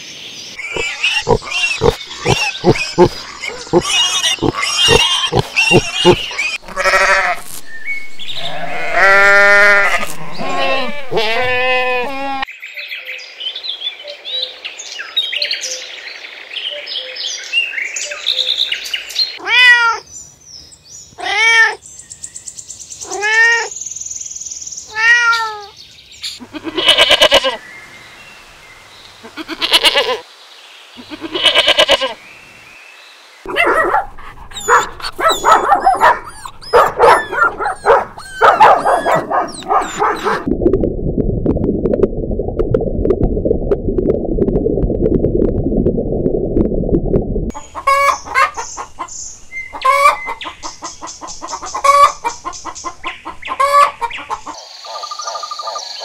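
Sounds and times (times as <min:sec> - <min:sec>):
animal yelps: 0:00.6 - 0:07.3, 0:33.5 - 0:40.5
animal cries: 0:00.6 - 0:07.4, 0:08.4 - 0:12.5, 0:26.4 - 0:27.6, 0:29.3 - 0:30.2, 0:31.0 - 0:32.2
hen clucking: 0:00.6 - 0:07.4, 0:33.6 - 0:40.5, 0:47.5 - 0:55.8
kittens meowing: 0:06.8 - 0:07.4, 0:08.4 - 0:12.4.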